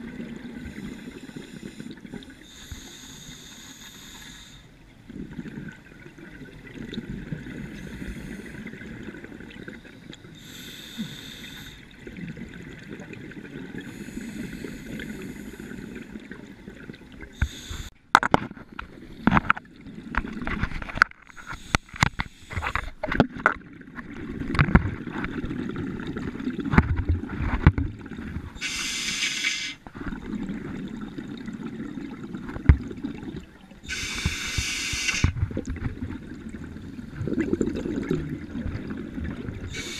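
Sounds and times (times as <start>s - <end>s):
scuba regulator hiss: 2.5s - 4.6s, 10.4s - 11.8s, 17.4s - 17.9s, 28.6s - 29.8s, 33.9s - 35.4s
bubbling rumble underwater: 29.9s - 34.3s, 35.3s - 39.9s.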